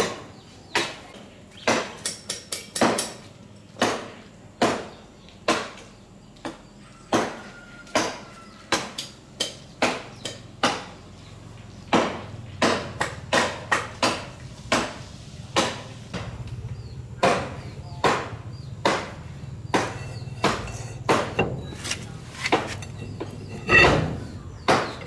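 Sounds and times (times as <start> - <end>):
hammer tapping on metal: 18.8 - 25.0.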